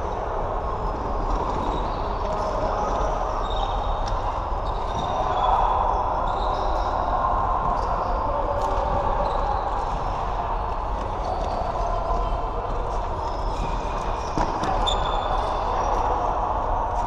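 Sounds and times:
shoe squeaks: 3.4 - 3.9, 13.2 - 15.6.

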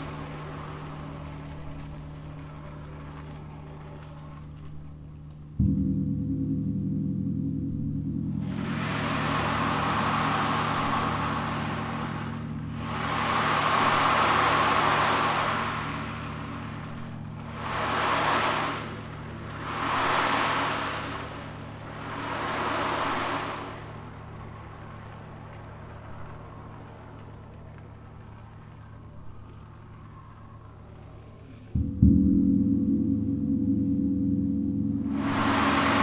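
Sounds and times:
gong humming: 4.9 - 25.1, 31.7 - 36.0
ocean drum beads hissing: 8.4 - 25.1, 35.0 - 36.0.

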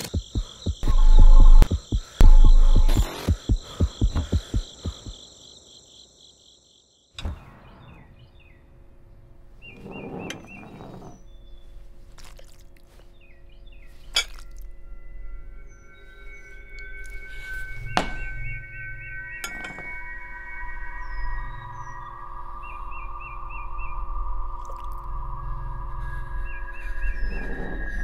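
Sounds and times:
low thumps: 0.0 - 5.1
birds chirping faintly: 0.0 - 28.0.

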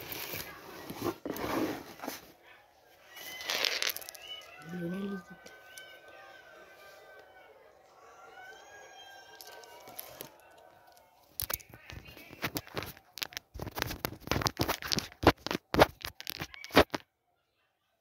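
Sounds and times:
fingers rubbing on phone microphone: 11.9 - 17.0.

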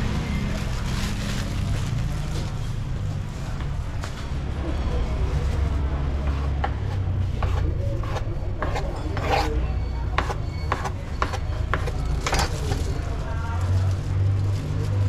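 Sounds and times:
utensils scraping and knocking: 6.2 - 12.9.

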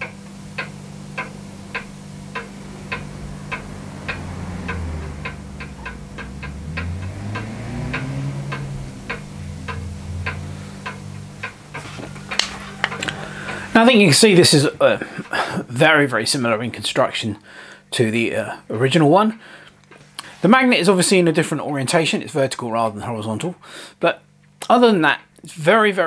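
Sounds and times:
steady even ticking: 0.0 - 15.4
low steady hum: 0.0 - 16.0.

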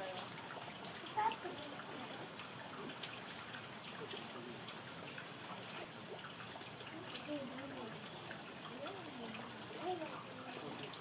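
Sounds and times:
drips striking surfaces: 0.0 - 11.0
steady rain hiss: 0.0 - 11.0.

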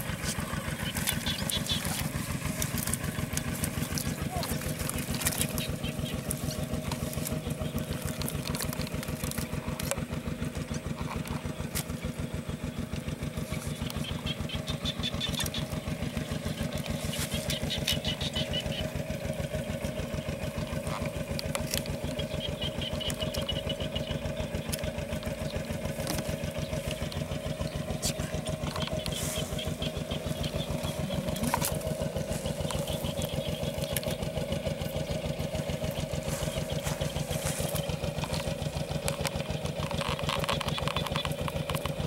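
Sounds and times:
small engine idling: 0.0 - 42.0.

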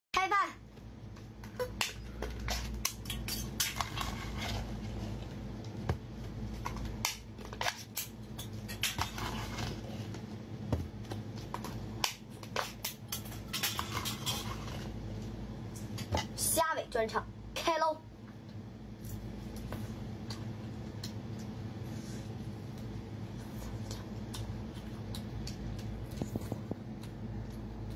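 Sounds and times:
low steady hum: 0.2 - 27.9.

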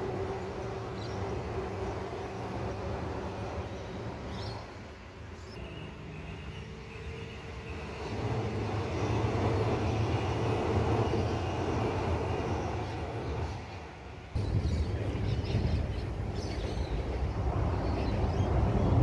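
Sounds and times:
train wheels rumbling over bridge: 0.0 - 5.6, 6.3 - 19.0
faint high whine: 0.0 - 16.4.

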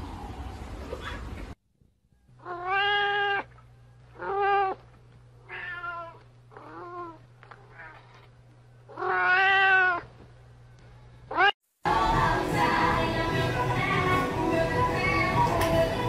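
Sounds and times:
cat meowing: 2.4 - 3.5, 4.2 - 4.8, 5.4 - 8.2, 8.9 - 10.1, 11.3 - 11.6.

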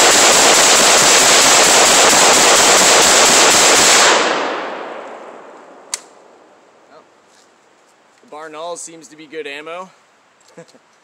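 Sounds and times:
rifle firing rapid shots: 0.0 - 4.8
gunshot echo: 0.0 - 6.5.

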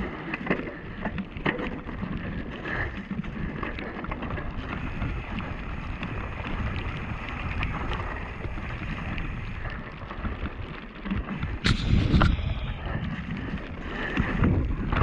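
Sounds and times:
bike rattling and knocking: 0.0 - 15.0
wind on microphone: 4.3 - 15.0.

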